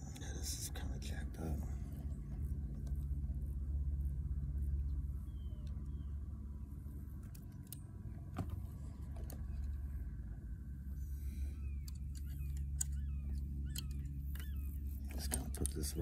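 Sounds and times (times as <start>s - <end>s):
fishing reel handling clicks: 11.8s - 16.0s.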